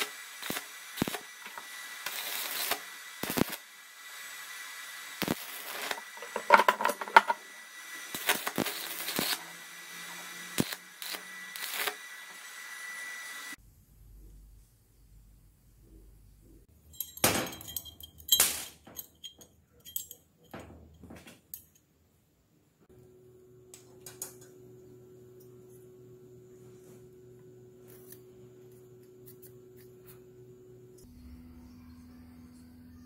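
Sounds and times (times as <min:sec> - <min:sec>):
steel workpiece clinking against metal: 0:16.9 - 0:20.8.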